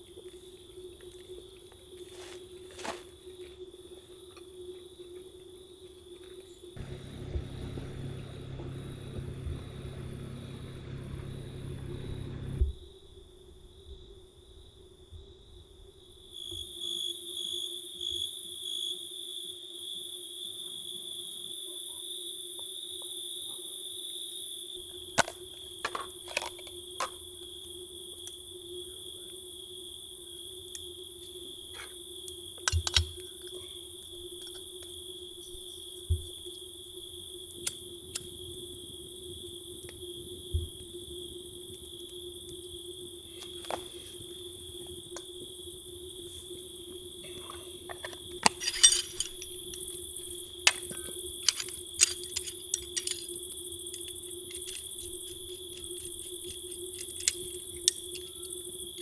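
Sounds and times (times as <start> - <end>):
low rumble: 6.8 - 12.7
insect chirring: 26.8 - 59.0.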